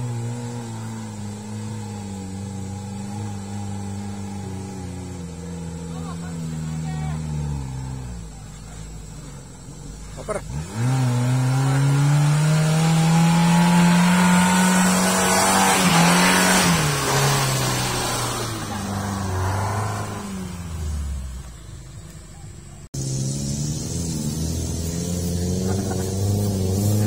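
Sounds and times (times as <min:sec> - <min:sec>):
engine revving hard under load: 0:00.0 - 0:08.9, 0:10.0 - 0:21.7, 0:22.9 - 0:27.0
another engine running: 0:00.0 - 0:27.0.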